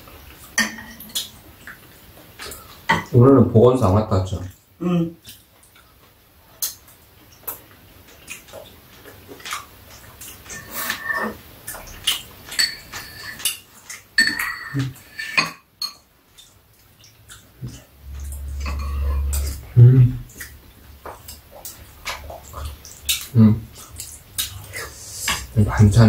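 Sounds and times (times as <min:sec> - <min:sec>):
utensils clinking on bowls: 0:12.0 - 0:16.1
low rumble: 0:17.6 - 0:22.8.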